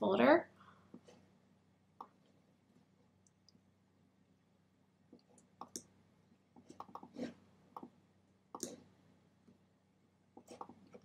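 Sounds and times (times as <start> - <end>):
faint low hum: 0.0 - 11.0
computer mouse clicks: 5.2 - 5.9, 6.6 - 7.1, 7.8 - 8.8.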